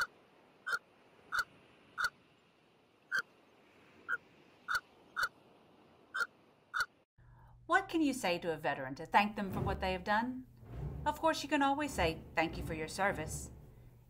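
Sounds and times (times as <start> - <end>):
short sharp animal calls: 0.7 - 2.2, 6.2 - 7.0.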